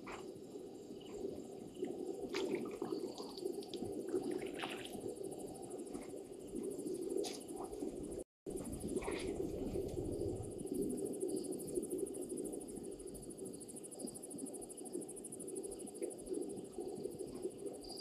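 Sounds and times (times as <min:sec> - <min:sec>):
water splashing and dripping: 0:01.8 - 0:05.1.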